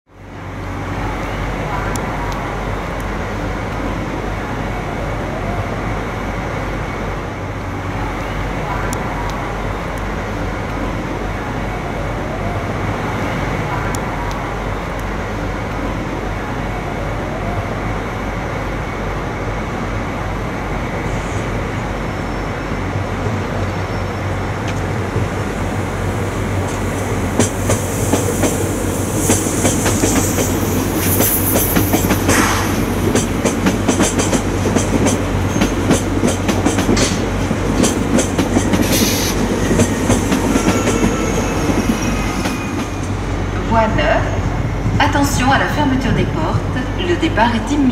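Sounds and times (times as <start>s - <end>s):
train rumble: 0.1s - 47.9s
wheels clacking over rail joints: 26.6s - 43.2s
wheel squeals: 38.8s - 43.0s.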